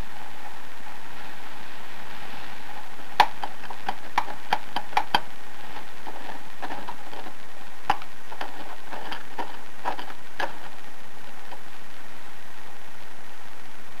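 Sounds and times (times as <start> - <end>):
steady hiss: 0.0 - 14.0
fingertip tapping metal hub: 3.2 - 5.3.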